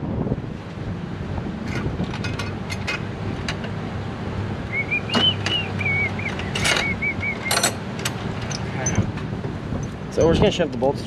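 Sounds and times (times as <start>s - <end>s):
bolts and tools clinking: 1.7s - 3.8s, 6.2s - 9.2s
wavering whistle-like tone: 4.7s - 7.6s.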